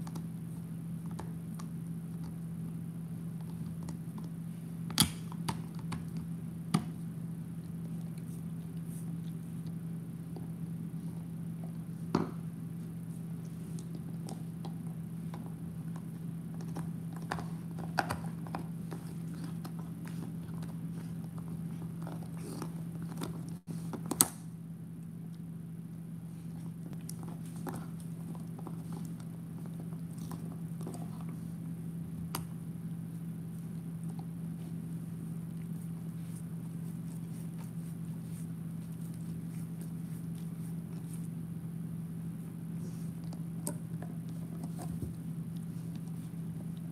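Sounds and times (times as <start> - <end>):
steady low hum: 0.0 - 46.9
dog chewing on a bone: 12.9 - 24.2, 26.5 - 41.5, 42.7 - 46.9.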